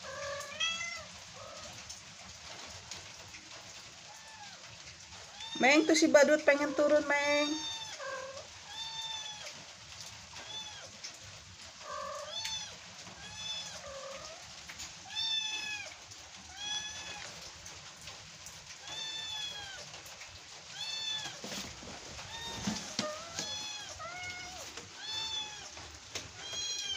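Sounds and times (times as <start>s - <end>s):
kitten meowing: 22.3s - 25.7s, 26.4s - 26.9s.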